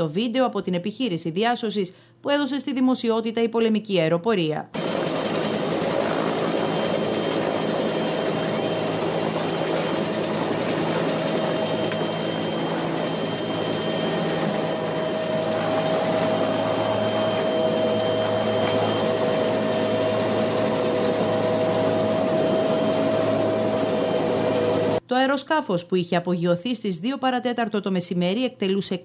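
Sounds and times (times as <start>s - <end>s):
helicopter engine drone: 4.8s - 25.0s
lower turbine whine: 4.8s - 25.0s.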